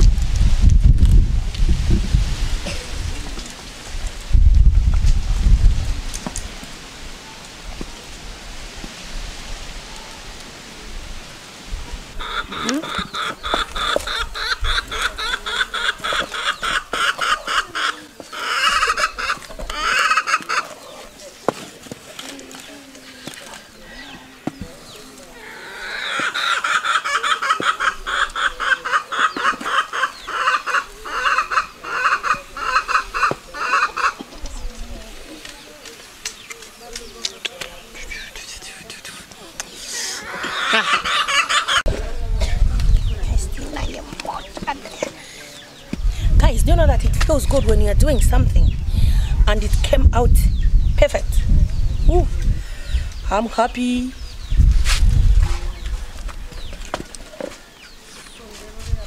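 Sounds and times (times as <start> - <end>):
wind buffeting microphone: 0.0 - 20.0, 41.8 - 45.2, 45.8 - 57.2, 58.6 - 59.0
wind through leaves: 0.0 - 59.0
chicken clucking: 12.2 - 21.3, 23.8 - 34.8, 38.8 - 43.2.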